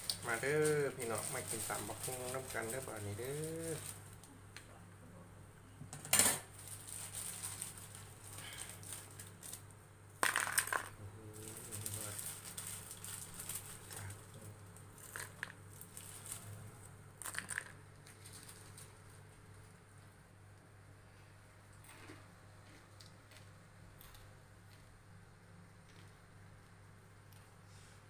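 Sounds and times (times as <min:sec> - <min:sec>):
fried pieces dropped into plastic bowl: 0:10.2 - 0:10.9, 0:15.1 - 0:15.6, 0:17.2 - 0:17.7.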